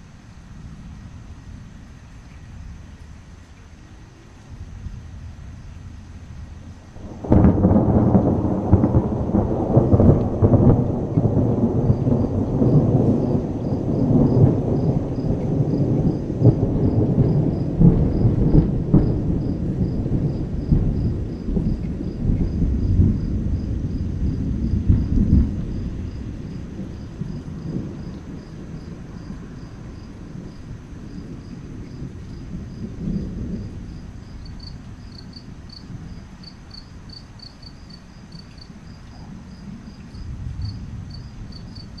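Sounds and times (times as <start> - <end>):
crickets chirping: 1.9 - 42.0
rolling thunder rumble: 4.1 - 42.0.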